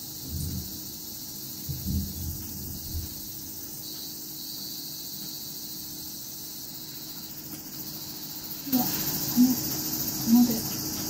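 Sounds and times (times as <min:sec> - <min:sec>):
insects droning: 0:00.0 - 0:11.0
soft low knocks: 0:01.6 - 0:03.4.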